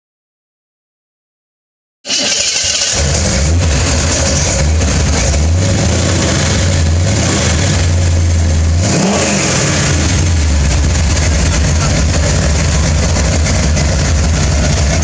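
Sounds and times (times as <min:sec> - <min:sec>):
truck engine idling loud and deep: 0:03.0 - 0:15.0.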